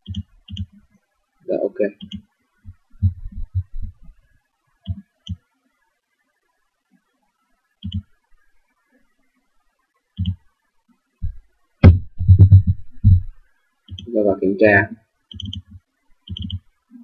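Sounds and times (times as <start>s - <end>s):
computer mouse clicking: 0.0s - 0.8s, 2.0s - 2.2s, 7.8s - 8.1s, 10.2s - 10.4s, 13.9s - 14.1s, 15.3s - 16.7s.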